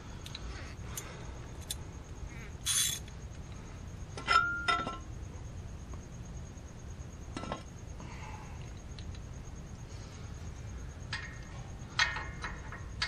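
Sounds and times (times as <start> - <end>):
ratchet clicks: 2.6 - 3.1.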